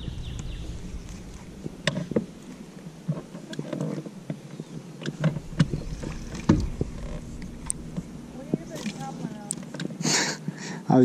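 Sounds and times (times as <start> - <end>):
electric motor buzzing: 5.1 - 9.8.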